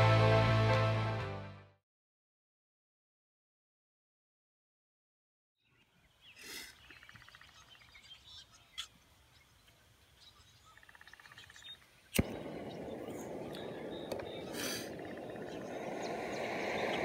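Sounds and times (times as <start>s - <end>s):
gas burner hissing: 12.2s - 17.0s.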